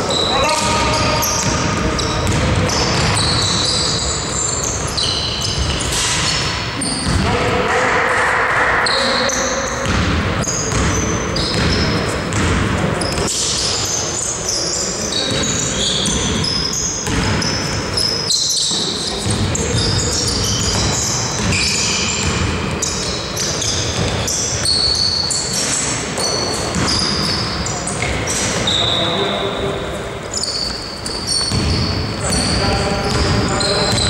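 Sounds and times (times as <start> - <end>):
sneakers squeaking on floor: 0.0 - 7.5, 8.8 - 34.0
basketball bouncing: 0.4 - 4.1, 4.8 - 7.3, 9.8 - 13.4, 15.3 - 17.8, 19.2 - 24.9, 25.6 - 28.6, 31.0 - 34.0.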